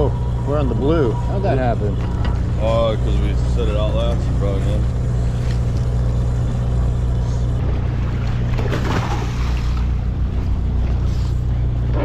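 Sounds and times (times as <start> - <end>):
boat engine humming: 0.0 - 12.0
water splashing against hull: 7.6 - 11.1.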